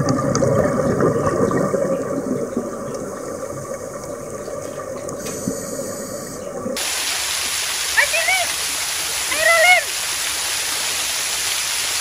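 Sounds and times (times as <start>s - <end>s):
muffled underwater rushing water: 0.0s - 12.0s.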